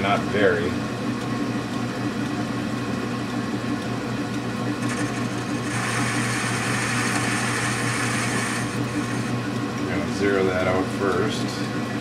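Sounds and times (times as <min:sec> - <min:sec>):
cutting tool hiss and whine: 0:04.8 - 0:09.4
metal lathe humming: 0:04.8 - 0:10.5.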